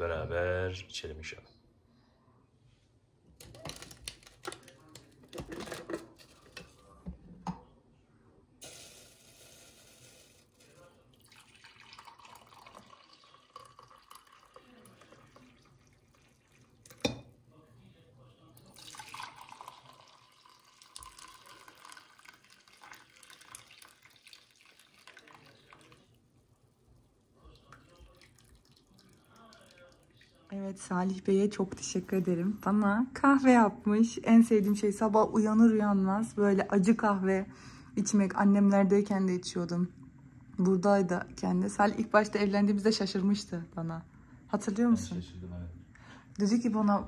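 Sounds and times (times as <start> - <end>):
kitchen items clattering: 3.4 - 7.6
faint water pouring: 8.6 - 30.8.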